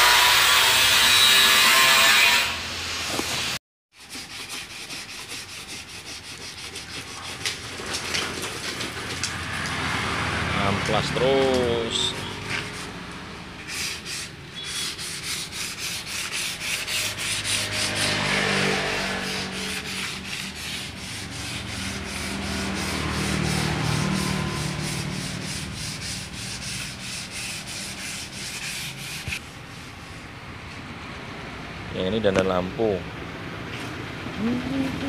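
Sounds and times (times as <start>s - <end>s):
sandpaper rubbing on filler: 4.0s - 8.8s, 11.2s - 30.3s.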